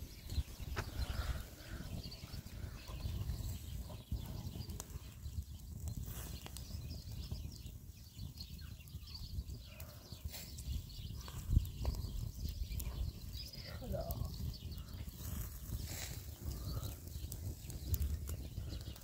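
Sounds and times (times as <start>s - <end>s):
fire crackling and popping: 0.0s - 19.0s
low fluttering rumble: 10.8s - 19.0s.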